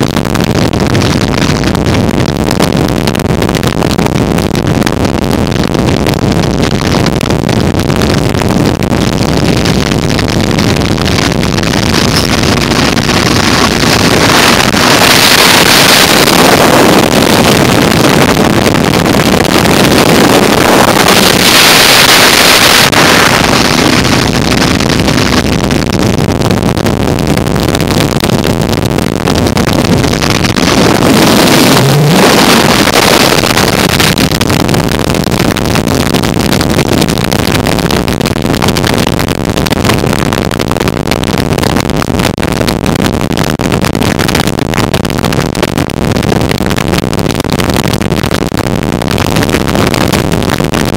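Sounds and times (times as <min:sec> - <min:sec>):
wind rushing over microphone: 0:00.0 - 0:50.9
road noise: 0:09.2 - 0:26.8, 0:29.3 - 0:34.5
motorcycle engine: 0:09.8 - 0:26.0, 0:29.4 - 0:34.4.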